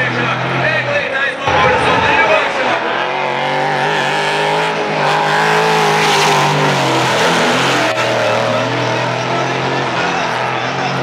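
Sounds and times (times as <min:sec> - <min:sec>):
car engines at high revs: 0:02.9 - 0:11.0.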